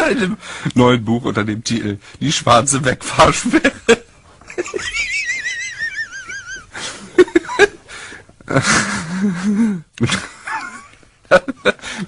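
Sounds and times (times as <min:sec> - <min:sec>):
man laughing: 0:03.3 - 0:12.0
gasping breaths: 0:07.8 - 0:09.9.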